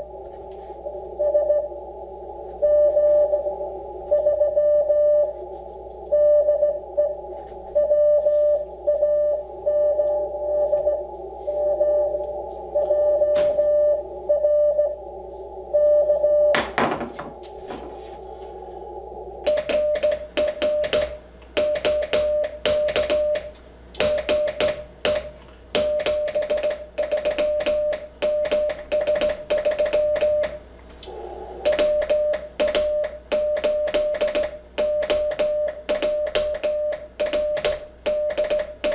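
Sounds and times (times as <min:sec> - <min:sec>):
radio receiver hiss: 0:00.0 - 0:16.4, 0:29.6 - 0:37.2
morse code beeps: 0:01.2 - 0:01.7, 0:02.6 - 0:03.5, 0:04.1 - 0:05.3, 0:06.1 - 0:07.2, 0:07.8 - 0:15.0, 0:19.5 - 0:30.6, 0:31.6 - 0:38.9
morse key clicking: 0:31.7 - 0:38.9.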